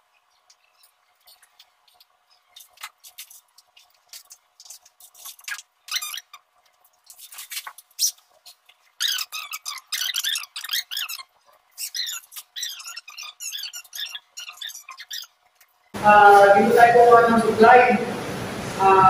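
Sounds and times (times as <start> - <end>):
projection screen clicks and rubbing: 0.3 - 15.9
projection screen squeaks: 4.6 - 6.5, 7.1 - 15.4.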